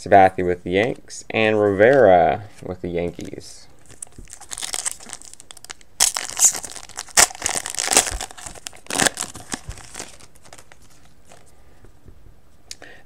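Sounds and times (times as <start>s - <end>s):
foil wrapper crinkling and tearing: 3.8s - 11.5s.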